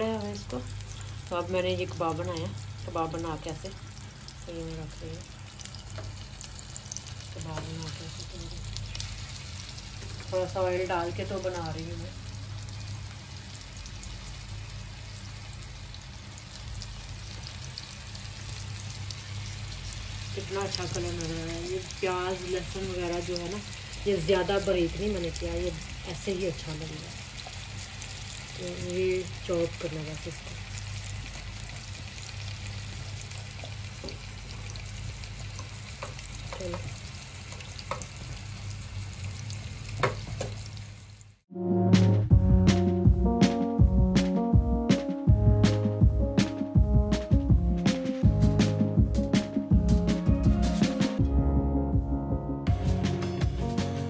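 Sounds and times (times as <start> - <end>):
food sizzling in oil: 0.0 - 41.4.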